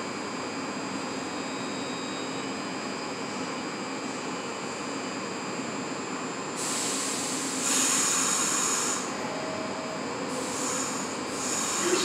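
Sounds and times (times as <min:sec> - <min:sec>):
subway train equipment humming: 0:02.5 - 0:12.0
air hiss bursts: 0:06.6 - 0:09.1, 0:10.4 - 0:12.0.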